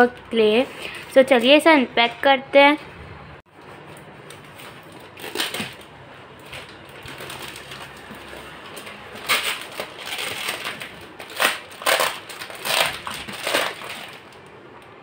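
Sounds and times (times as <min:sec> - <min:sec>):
plastic packaging crinkling: 0:03.9 - 0:14.5.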